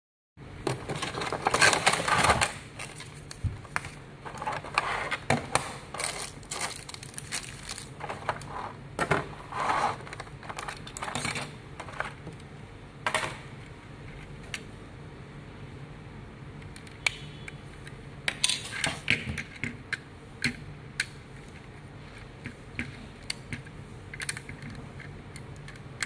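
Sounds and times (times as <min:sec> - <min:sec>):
plastic packaging crinkling: 0:06.0 - 0:08.5.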